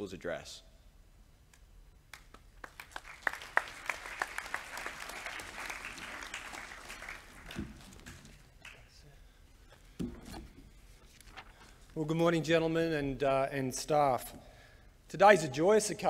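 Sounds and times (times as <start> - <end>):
audience applause: 2.2 - 9.0.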